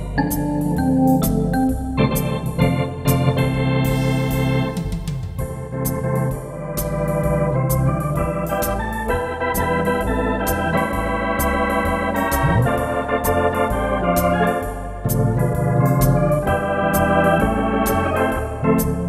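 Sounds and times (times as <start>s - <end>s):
electronic organ chords: 0.0s - 19.0s
walking pedal bass: 5.4s - 19.0s.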